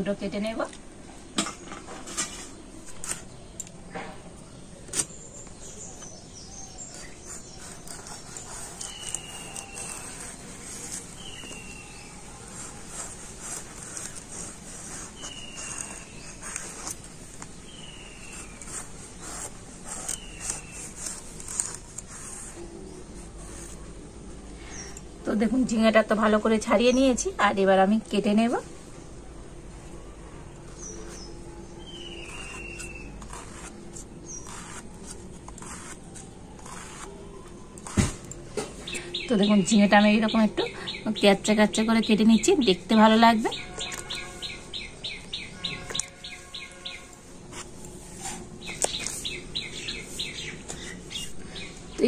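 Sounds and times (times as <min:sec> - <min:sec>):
gourd scraping against blade: 0:01.7 - 0:03.6, 0:04.8 - 0:24.0, 0:30.6 - 0:39.0, 0:42.6 - 0:51.7
birds chirping: 0:02.0 - 0:23.8, 0:30.6 - 0:34.9, 0:35.6 - 0:52.0.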